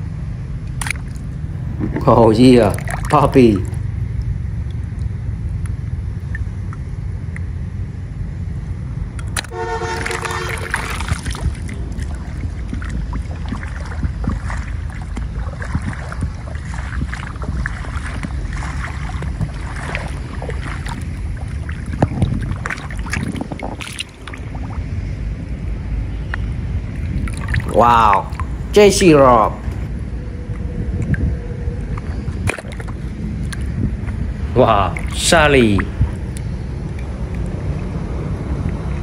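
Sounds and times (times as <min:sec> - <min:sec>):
wind rumbling on microphone: 0:00.0 - 0:39.0
short horn toot: 0:09.5 - 0:11.0.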